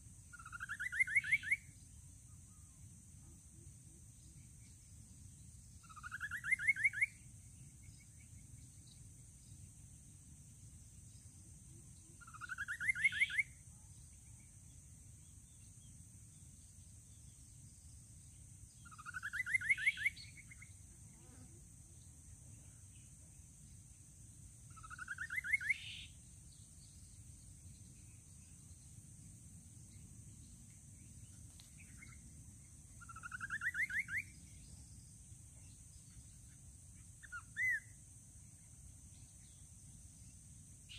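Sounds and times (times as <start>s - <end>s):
bird singing rising trills: 0.3s - 1.8s, 12.2s - 13.6s, 18.8s - 20.8s, 24.7s - 28.9s, 33.0s - 38.0s.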